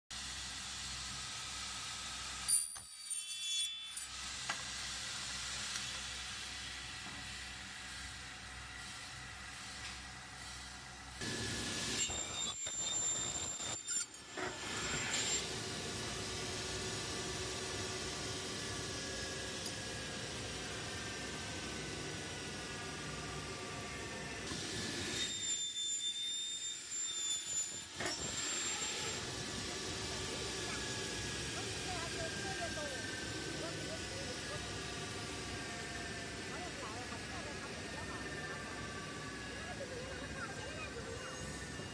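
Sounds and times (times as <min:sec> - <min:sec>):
circular saw running: 0:00.2 - 0:41.9
saw screeching through metal: 0:02.4 - 0:04.9, 0:11.9 - 0:16.4, 0:24.5 - 0:32.2, 0:41.0 - 0:41.9.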